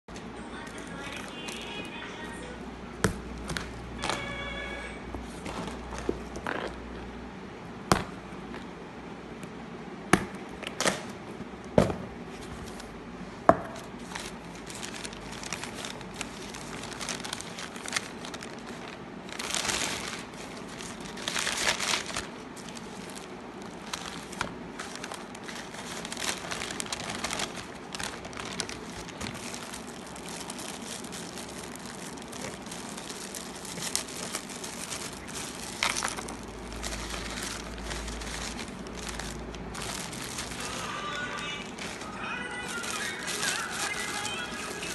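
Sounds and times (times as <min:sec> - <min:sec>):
paper and plastic wrap crinkling: 0:00.2 - 0:06.9, 0:13.7 - 0:44.9.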